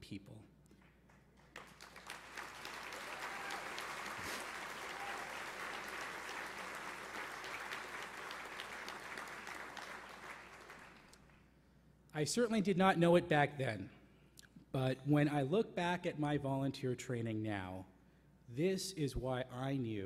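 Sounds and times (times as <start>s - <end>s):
audience applauding: 1.3s - 11.4s.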